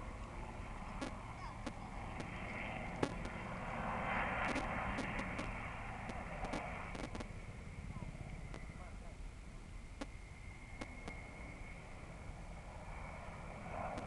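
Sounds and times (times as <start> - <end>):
helicopter flying low past: 0.0 - 14.0
sharp clicks: 3.0 - 3.4, 4.4 - 7.3.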